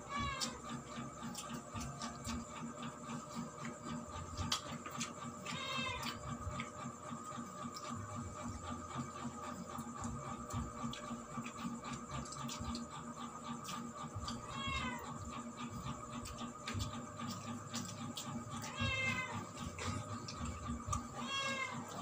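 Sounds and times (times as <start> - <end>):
cat meowing: 0.0 - 0.6, 5.5 - 6.2, 14.2 - 15.2, 18.6 - 19.6, 21.0 - 22.0
clicks and clatter of eating: 0.0 - 22.0.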